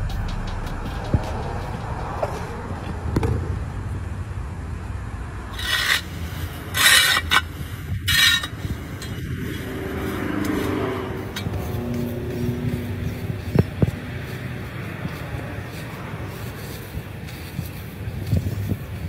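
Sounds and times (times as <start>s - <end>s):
tool scraping soil: 5.5s - 19.0s.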